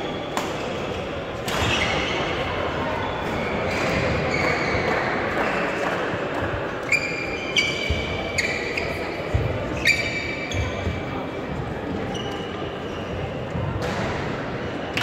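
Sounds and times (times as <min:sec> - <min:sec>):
murmur of voices echoing: 0:00.0 - 0:15.0
shoe squeaks and racket strikes: 0:06.8 - 0:11.1, 0:12.0 - 0:13.5.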